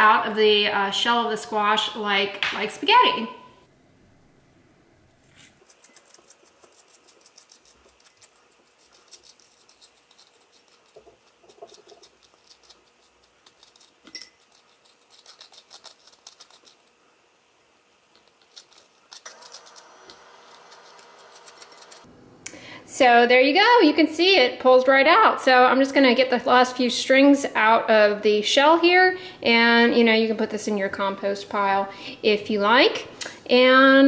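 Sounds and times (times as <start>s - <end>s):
fork scraping squash strands: 5.2s - 17.0s, 18.2s - 22.1s.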